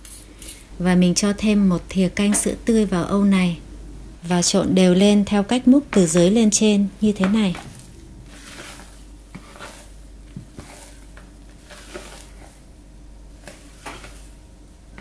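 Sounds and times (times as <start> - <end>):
spatula scraping and tapping bowl: 7.1 - 12.6, 13.4 - 14.3
wet batter squishing: 7.2 - 12.7.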